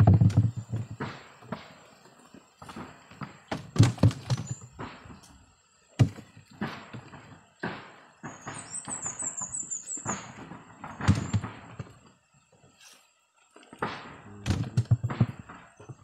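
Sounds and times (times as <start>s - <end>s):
wooden knocks and bumps: 0.0s - 1.7s, 2.6s - 5.3s, 6.0s - 9.0s, 10.1s - 12.2s, 13.8s - 16.0s.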